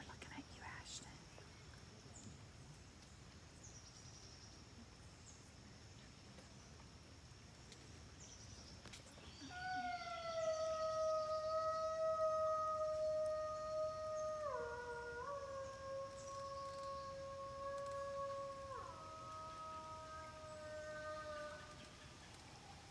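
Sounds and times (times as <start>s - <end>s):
wolf howling: 9.4s - 21.9s.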